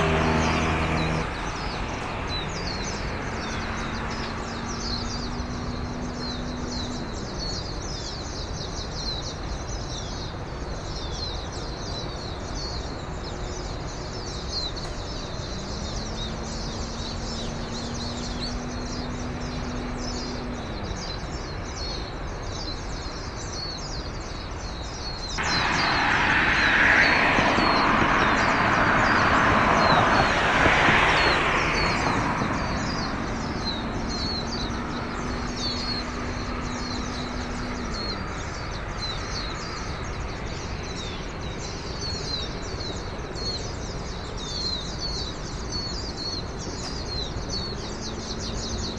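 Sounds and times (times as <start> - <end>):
loud rushing noise: 0.0 - 5.3, 25.4 - 41.7
small birds chirping: 0.0 - 48.9.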